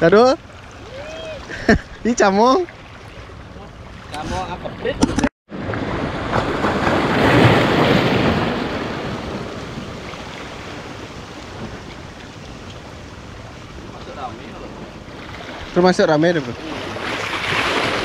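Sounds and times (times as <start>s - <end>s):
sea waves breaking on rocks: 5.5s - 18.0s.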